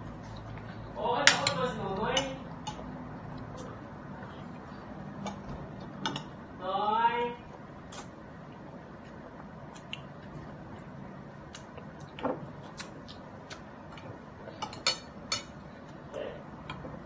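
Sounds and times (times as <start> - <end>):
low room hum: 0.0 - 17.0
utensils clinking on a plate: 1.2 - 2.9, 14.5 - 15.6.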